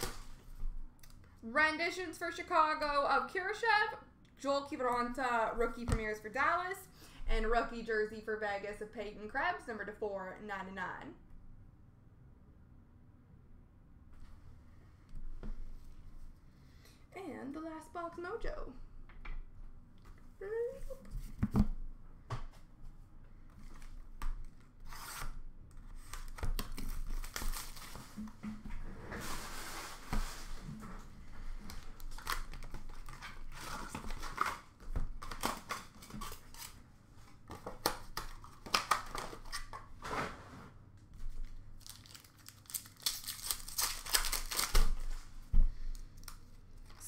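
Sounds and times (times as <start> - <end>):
wrapper tearing and crinkling: 26.0 - 28.2, 41.4 - 45.2.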